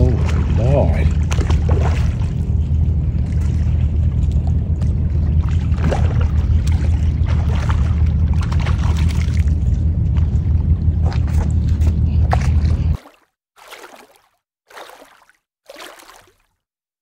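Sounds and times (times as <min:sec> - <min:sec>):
steady low rumble: 0:00.0 - 0:13.0
fish splashing at water surface: 0:00.0 - 0:16.6.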